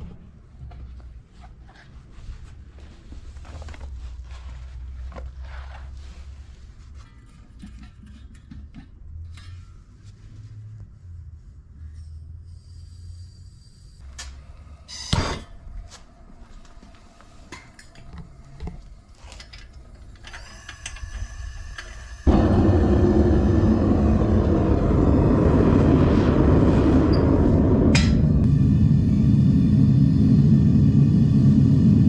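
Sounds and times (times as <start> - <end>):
propane burner roaring: 20.2 - 32.0.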